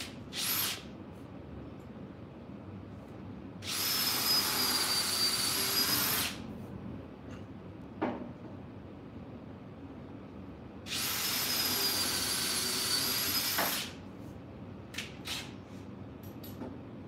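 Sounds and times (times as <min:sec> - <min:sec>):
cordless drill whining: 0:00.4 - 0:00.8, 0:03.6 - 0:06.4, 0:10.9 - 0:13.9.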